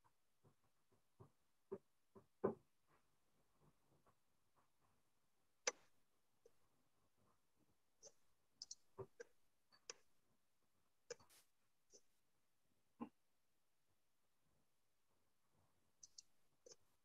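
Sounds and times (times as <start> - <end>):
faint clicks and taps: 0.0 - 10.2, 11.0 - 12.2, 15.5 - 17.0.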